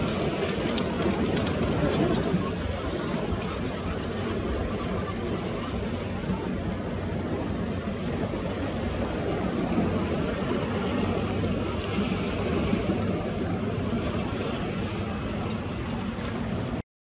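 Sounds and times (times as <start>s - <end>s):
sea waves: 0.0s - 16.8s
wind rumbling on microphone: 0.0s - 16.8s.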